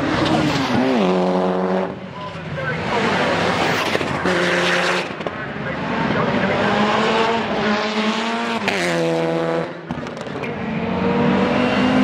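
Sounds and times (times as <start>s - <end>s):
car engine revving high: 2.6s - 12.0s.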